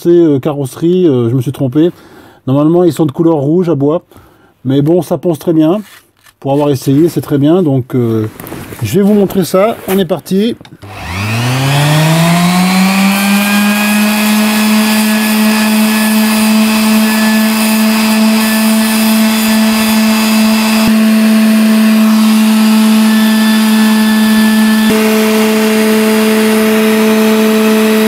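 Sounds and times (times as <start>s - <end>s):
orbital sander sanding wood: 10.8s - 28.0s.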